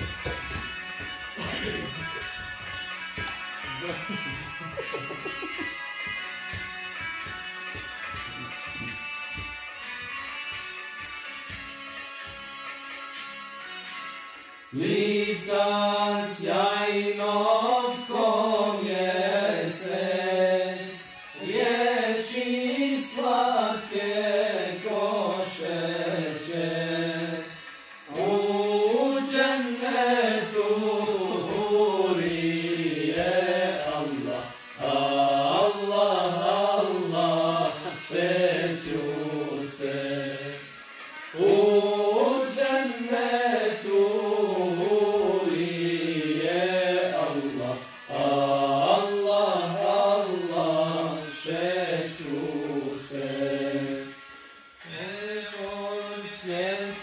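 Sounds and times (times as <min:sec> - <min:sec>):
men singing unaccompanied: 0:14.8 - 0:54.2, 0:54.8 - 0:57.0.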